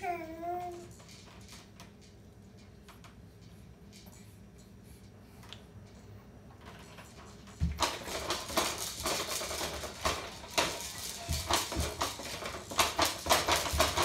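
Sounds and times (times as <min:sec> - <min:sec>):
baby bouncer knocks and rattles: 0:00.0 - 0:03.1, 0:06.6 - 0:14.0.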